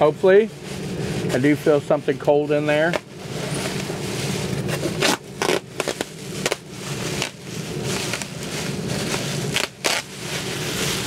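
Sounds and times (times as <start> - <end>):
steady low hum: 0.0 - 11.0
foil bag crinkling: 2.8 - 11.0.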